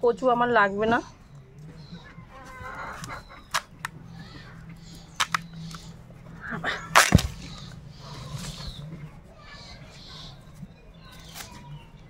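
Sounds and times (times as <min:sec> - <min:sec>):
blade crunching through corm: 0:05.0 - 0:05.9, 0:06.9 - 0:07.7
heavy thud: 0:07.0 - 0:07.6.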